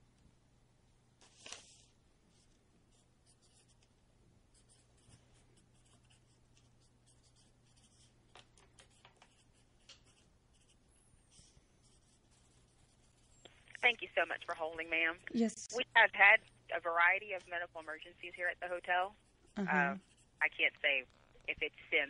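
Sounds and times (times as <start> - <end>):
faint low telephone hum: 0.0 - 22.0.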